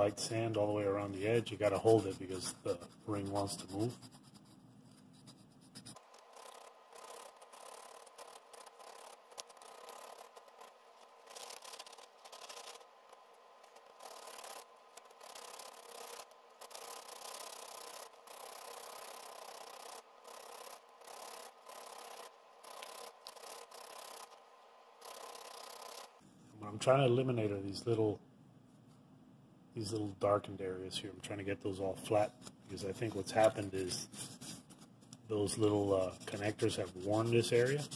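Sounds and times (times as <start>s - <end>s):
sandpaper rubbing by hand: 1.3s - 4.6s, 5.2s - 10.7s, 11.3s - 12.8s, 13.9s - 24.2s, 32.8s - 34.8s, 35.4s - 37.9s.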